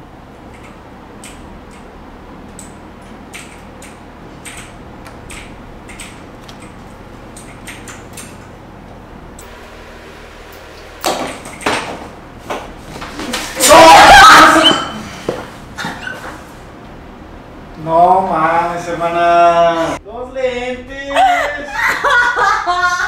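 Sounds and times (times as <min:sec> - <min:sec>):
steady low hum: 0:00.0 - 0:13.6, 0:14.8 - 0:23.0
computer keyboard and mouse clicking: 0:02.5 - 0:08.4.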